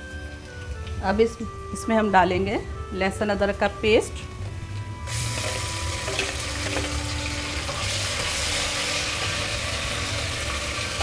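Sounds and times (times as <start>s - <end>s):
onions sizzling in hot oil: 5.0s - 11.0s.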